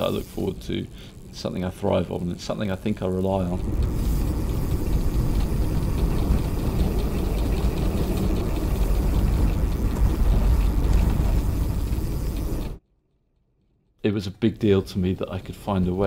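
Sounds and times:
faint hiss: 0.0s - 12.8s
wind and tyre rumble at speed: 0.0s - 12.8s.

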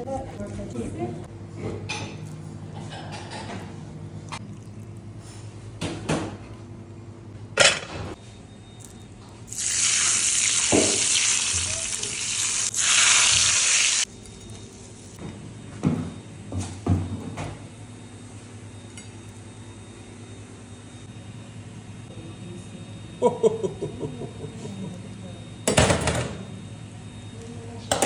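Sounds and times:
steak sizzling loudly: 9.5s - 14.1s.

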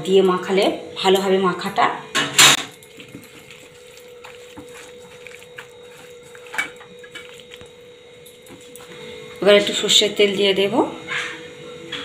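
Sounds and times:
hand kneading wet paste: 2.8s - 7.9s.

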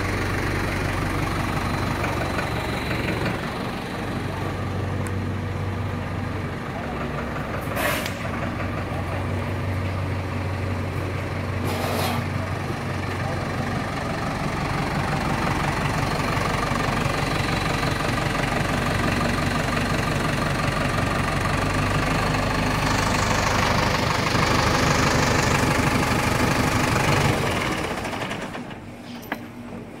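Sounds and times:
tractor diesel engine idling: 0.0s - 30.0s.

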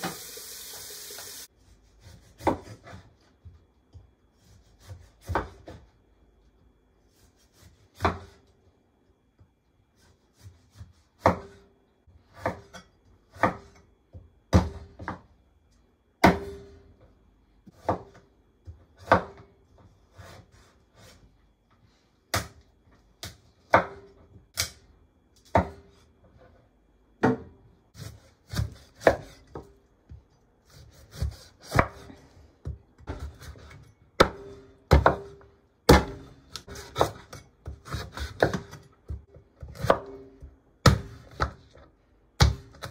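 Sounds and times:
cleaver chopping on wooden board: 34.2s - 38.8s, 40.8s - 41.6s.

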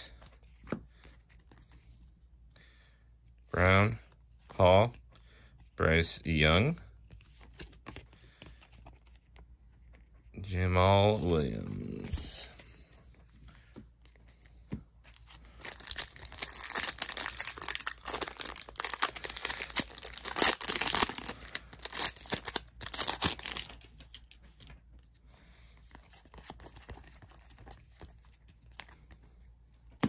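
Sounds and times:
cards being handled: 0.1s - 2.1s, 6.5s - 10.3s, 10.9s - 30.0s
foil wrapper tearing and crinkling: 15.5s - 24.4s.

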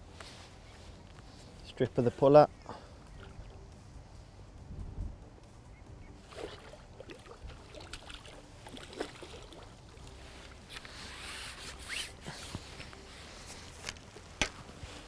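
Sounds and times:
fish splashing at surface: 6.3s - 9.7s.

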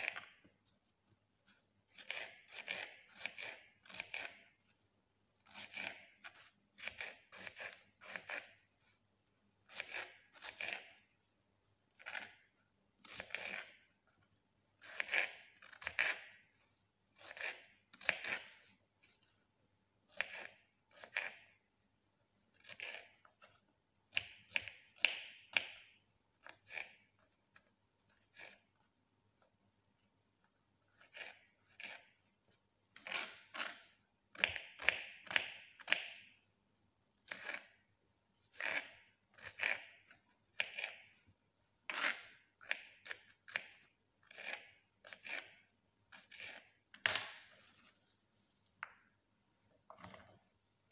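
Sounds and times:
blade scraping raw food: 1.4s - 4.7s, 5.4s - 9.1s, 14.8s - 19.4s, 38.4s - 41.1s.

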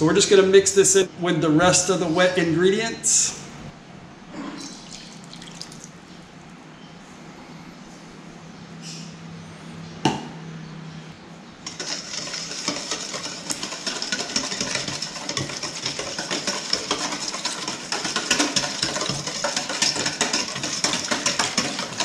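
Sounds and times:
utensil clinking and scraping bowl: 11.6s - 22.0s.

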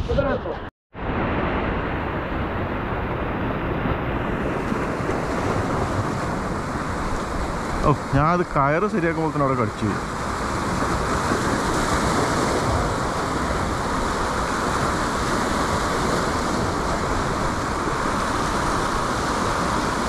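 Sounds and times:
surf breaking over rocks: 1.0s - 20.0s.

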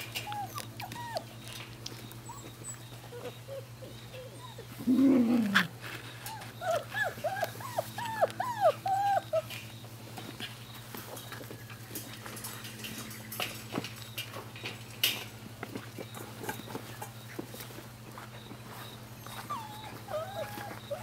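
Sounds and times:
puppies whimpering and yipping: 0.0s - 10.4s, 18.6s - 21.0s.

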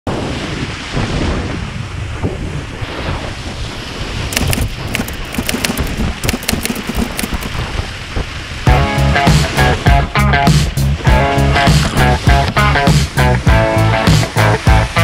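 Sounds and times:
water rushing and spraying: 0.1s - 15.0s
wind noise on microphone: 0.1s - 15.0s
crackling splashes: 4.2s - 8.6s.

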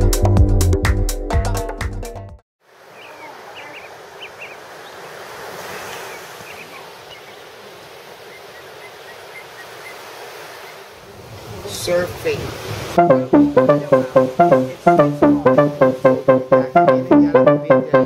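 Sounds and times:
waves breaking on beach: 2.6s - 13.0s
small birds chirping: 2.9s - 7.6s, 8.2s - 10.8s.

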